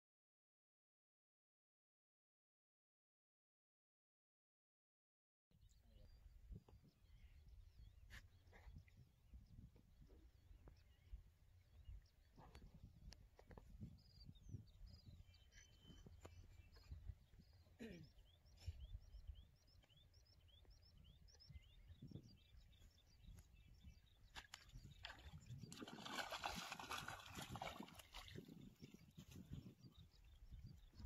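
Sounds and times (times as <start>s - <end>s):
small birds chirping: 5.6s - 31.0s
fish splashing at water surface: 25.8s - 28.4s.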